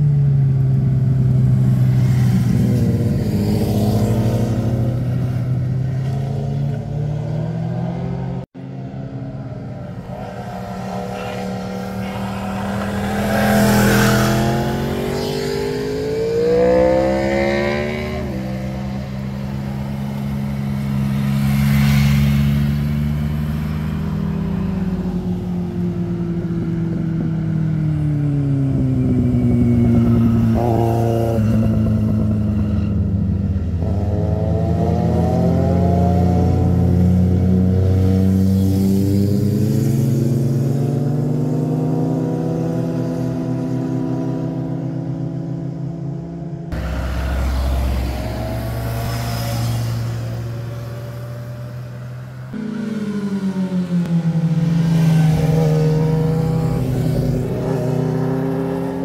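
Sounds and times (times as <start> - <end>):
motorcycle engines accelerating: 0.0 - 59.0
car passing: 1.2 - 26.2, 46.7 - 59.0.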